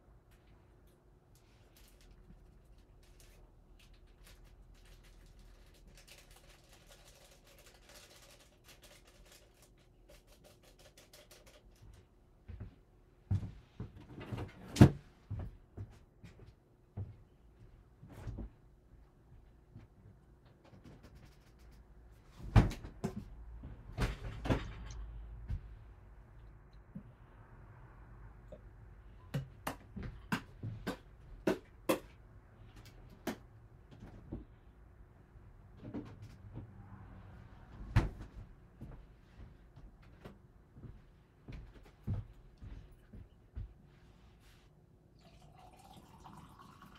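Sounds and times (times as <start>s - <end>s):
objects knocking and thumping: 22.4s - 25.7s.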